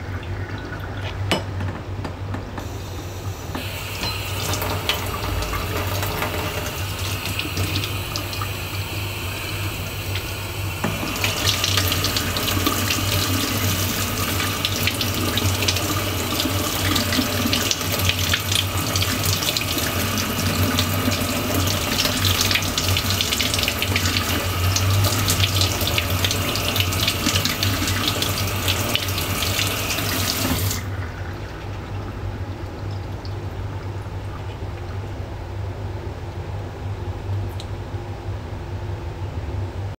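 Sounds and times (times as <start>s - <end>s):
tap water splashing into sink: 3.6s - 8.8s, 10.1s - 30.9s.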